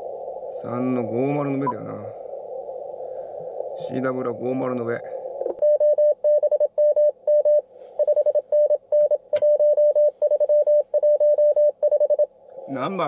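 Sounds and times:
morse code tone: 0:05.6 - 0:12.3.

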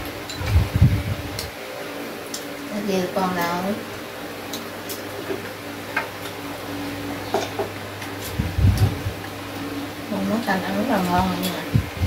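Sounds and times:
steady low hum: 0:00.0 - 0:12.0
chopsticks clicking on bowls: 0:02.3 - 0:02.5, 0:04.4 - 0:06.4.

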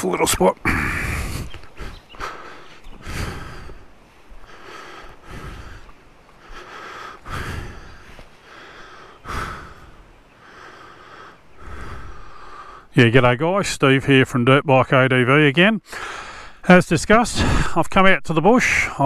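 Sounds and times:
man breathing noisily: 0:00.6 - 0:12.9, 0:15.8 - 0:16.6.

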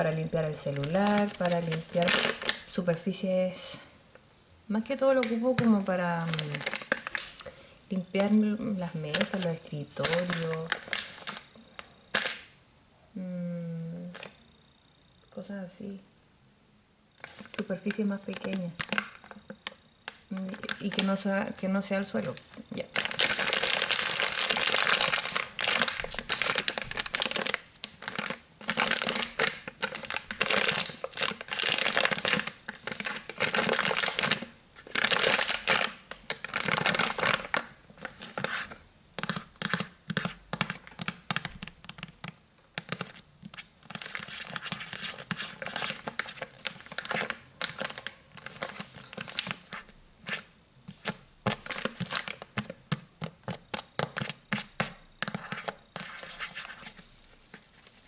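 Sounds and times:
fingernails scratching plastic wrapper: 0:00.6 - 0:02.7, 0:22.9 - 0:57.0.

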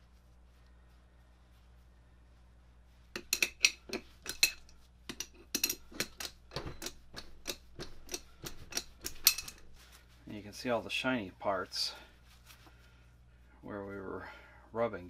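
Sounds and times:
metal tools clinking: 0:03.2 - 0:09.7.

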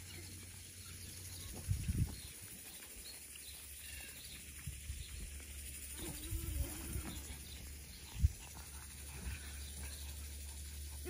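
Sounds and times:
wind rumble on microphone: 0:01.4 - 0:02.4, 0:06.0 - 0:08.8
low drawn-out animal sound: 0:05.8 - 0:11.0.

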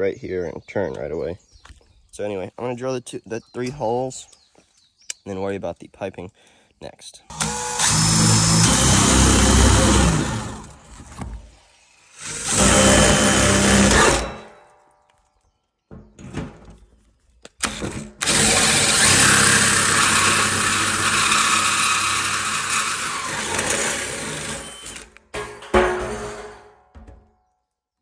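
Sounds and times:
drill cutting through plastic: 0:07.3 - 0:10.9, 0:11.9 - 0:14.4, 0:17.6 - 0:25.2
knocks: 0:25.4 - 0:27.4.

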